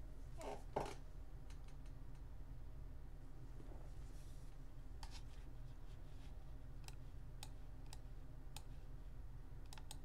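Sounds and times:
low steady hum: 0:00.0 - 0:10.0
computer mouse clicking: 0:06.8 - 0:08.8, 0:09.6 - 0:10.0.

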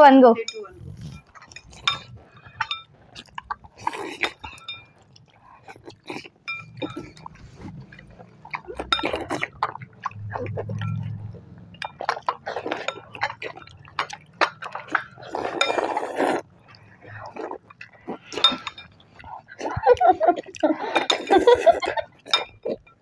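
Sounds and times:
chopsticks clinking on glass bowls: 0:00.4 - 0:09.9, 0:10.7 - 0:16.0, 0:17.7 - 0:20.1, 0:20.9 - 0:23.0
slurping noodles: 0:14.8 - 0:18.6.

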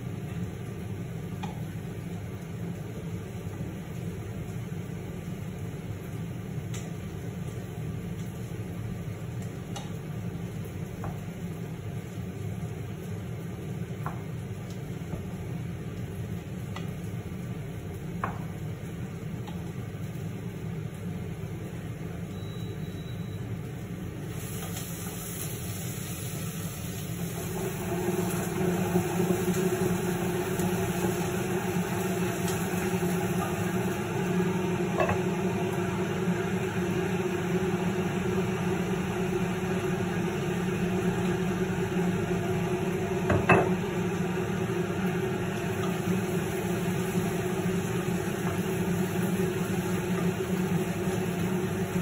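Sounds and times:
extractor fan humming: 0:23.9 - 0:52.0.

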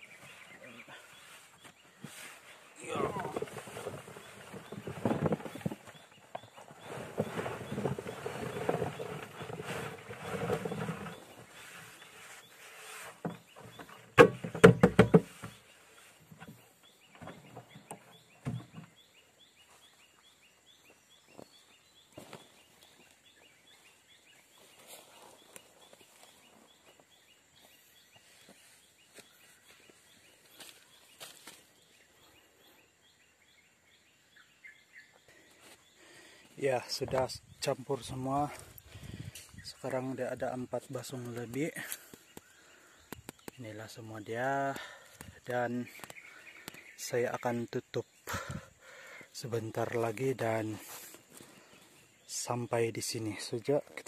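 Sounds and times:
ginger rattling and rustling: 0:01.1 - 0:19.1.

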